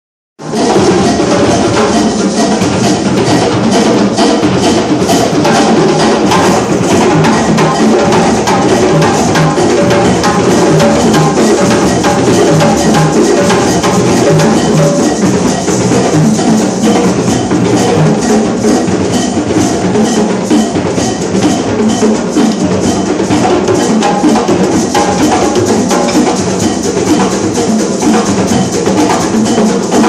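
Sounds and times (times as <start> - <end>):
drum ensemble fast rhythm: 0.4 - 30.0.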